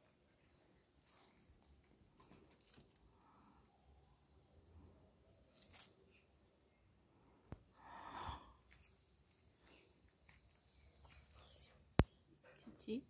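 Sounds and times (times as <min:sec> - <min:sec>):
soft rustle: 0:00.0 - 0:03.6, 0:05.4 - 0:06.3, 0:08.6 - 0:12.9
faint outdoor ambience: 0:00.0 - 0:13.0.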